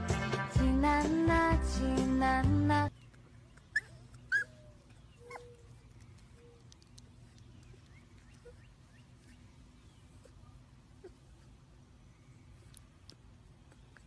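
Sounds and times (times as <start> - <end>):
music: 0.0 - 2.9
puppy whimpering: 3.6 - 5.8, 7.8 - 9.5, 10.1 - 11.6.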